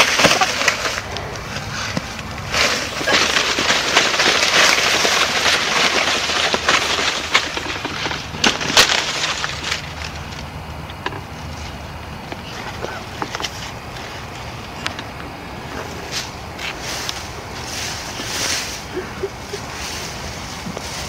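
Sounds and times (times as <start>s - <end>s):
stalks snapping: 0.0s - 11.1s
dry corn stalks rustling: 0.0s - 21.0s.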